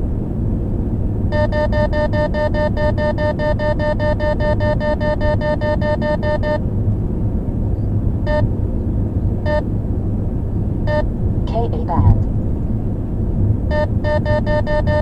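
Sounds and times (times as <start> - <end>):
road and engine rumble: 0.0 - 15.0
radar detector beeps: 1.3 - 6.6, 13.7 - 15.0.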